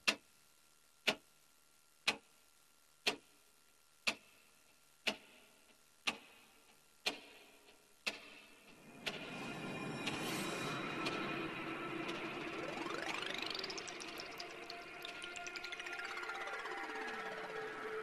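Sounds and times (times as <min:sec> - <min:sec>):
clock ticking: 0:00.0 - 0:00.2, 0:01.0 - 0:01.3, 0:02.0 - 0:02.3, 0:03.0 - 0:03.4, 0:04.0 - 0:04.4, 0:05.0 - 0:18.0.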